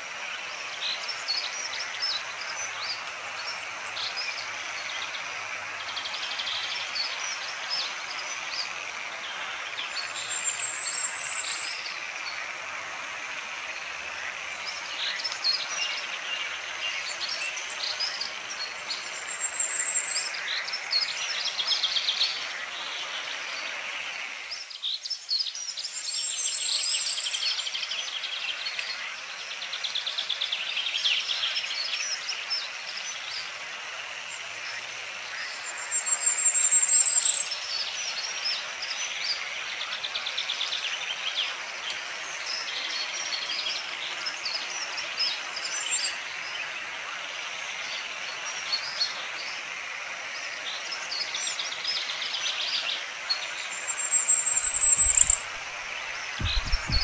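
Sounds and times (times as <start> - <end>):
steady hiss: 0.0 - 57.0
animals chirping and trilling: 52.5 - 57.0.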